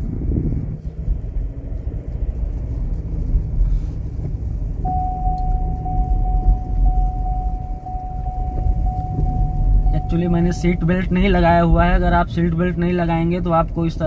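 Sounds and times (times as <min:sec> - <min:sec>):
road and engine rumble: 0:00.0 - 0:14.0
seatbelt warning beeps: 0:04.8 - 0:11.7.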